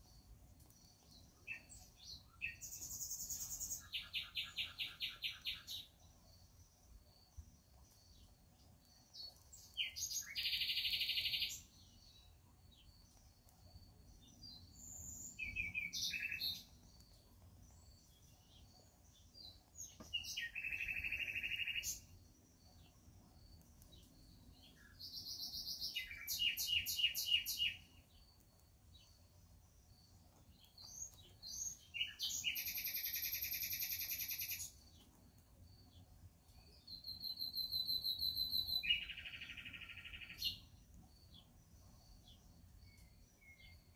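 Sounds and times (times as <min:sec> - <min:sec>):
songbird chirps and trills: 0:00.0 - 0:43.9.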